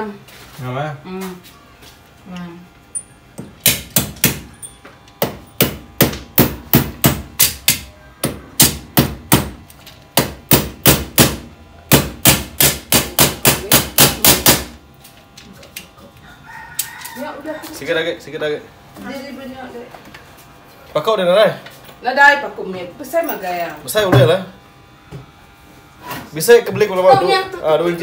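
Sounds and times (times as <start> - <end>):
hammer striking: 3.4 - 4.5, 5.2 - 9.6, 10.2 - 14.7.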